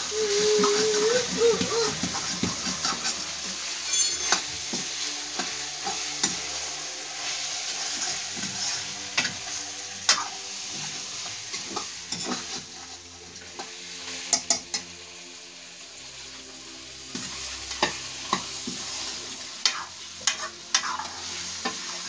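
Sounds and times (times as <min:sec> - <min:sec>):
meat sizzling in a wok: 0:00.0 - 0:22.0
metal spoon scraping and clinking: 0:03.8 - 0:04.5.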